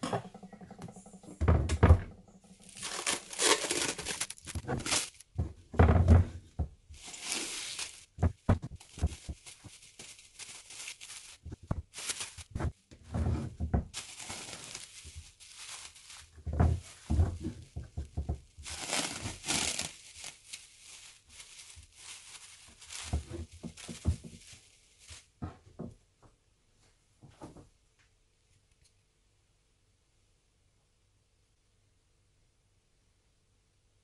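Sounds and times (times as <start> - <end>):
rustling and crinkling: 0.2 - 26.1
dull thumps: 8.1 - 19.9, 21.2 - 24.6.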